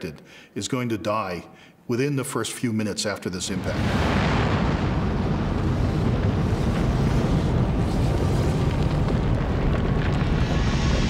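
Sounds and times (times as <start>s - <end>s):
deep steady rumble: 3.8s - 11.0s.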